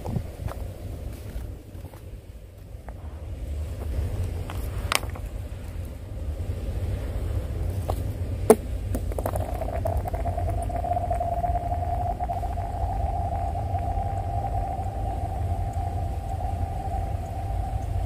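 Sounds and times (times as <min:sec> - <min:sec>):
low rumble: 0:00.0 - 0:18.0
ringing tone of stone skidding on ice: 0:07.8 - 0:15.0
stone knocking on ice: 0:08.5 - 0:10.6.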